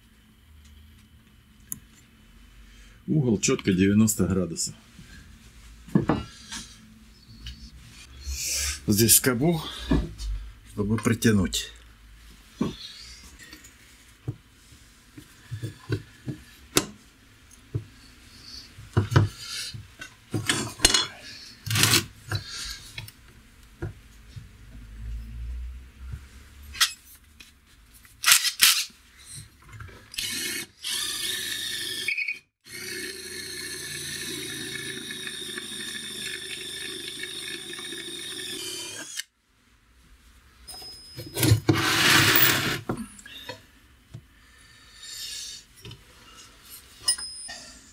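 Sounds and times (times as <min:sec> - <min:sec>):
electric drill running: 0:30.2 - 0:39.3, 0:41.8 - 0:42.8
scraping noise: 0:41.6 - 0:43.0.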